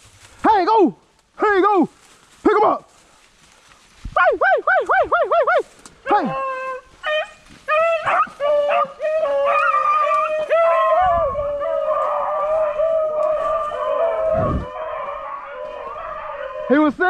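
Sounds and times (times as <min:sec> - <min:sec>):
dogs baying and howling: 0:04.2 - 0:17.0.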